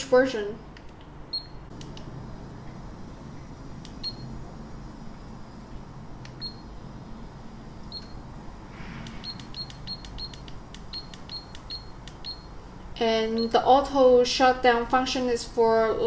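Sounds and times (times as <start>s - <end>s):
camera beeps: 9.2s - 12.5s.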